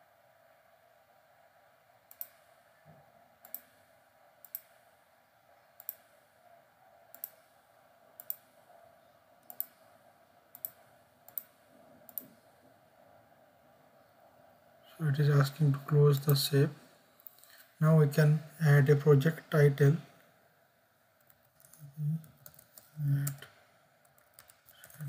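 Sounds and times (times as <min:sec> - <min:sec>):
faint steady background hum: 0:00.0 - 0:25.0
computer mouse clicking: 0:02.1 - 0:02.6, 0:03.4 - 0:03.8, 0:04.4 - 0:04.8, 0:05.8 - 0:06.2, 0:07.1 - 0:07.6, 0:08.2 - 0:08.6, 0:09.4 - 0:09.9, 0:10.5 - 0:12.4, 0:21.2 - 0:25.0.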